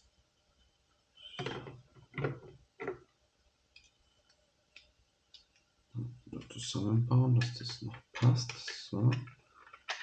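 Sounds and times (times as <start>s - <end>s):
plastic bricks clattering: 9.2s - 10.0s.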